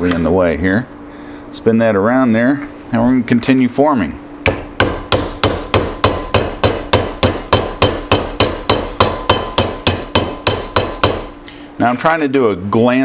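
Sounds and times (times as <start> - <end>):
mallet striking copper disc: 4.4 - 11.4.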